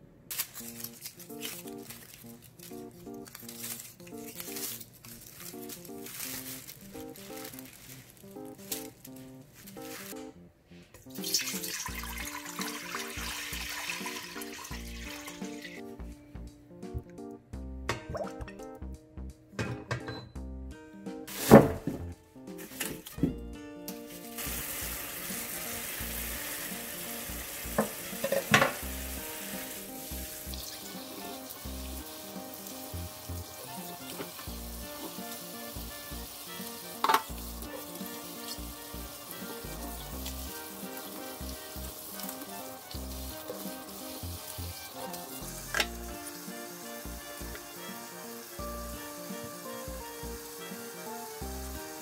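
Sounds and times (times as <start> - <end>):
tap water running into sink: 11.1 - 15.8, 24.4 - 48.6.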